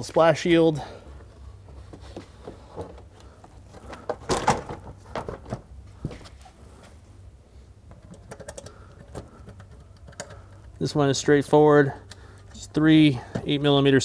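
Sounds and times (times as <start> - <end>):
plastic shield knocking and rattling: 4.0 - 5.7
fasteners clicking: 7.9 - 10.8.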